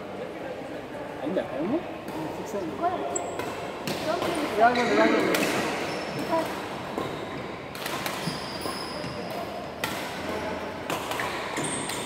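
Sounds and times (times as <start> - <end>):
rackets hitting shuttlecocks: 3.2 - 12.0.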